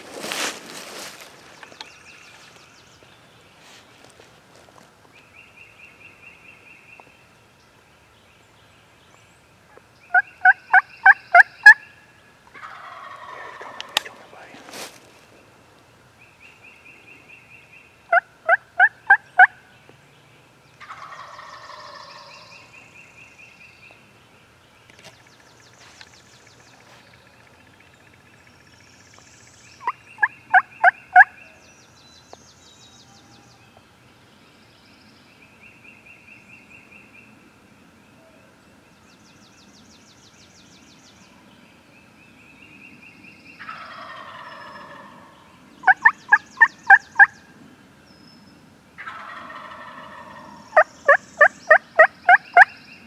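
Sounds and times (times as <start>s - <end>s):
turkey gobbling: 10.1s - 11.8s, 12.6s - 14.2s, 20.8s - 22.5s, 29.8s - 31.3s, 43.6s - 47.3s, 49.0s - 52.7s
hen turkey yelps: 45.8s - 47.3s.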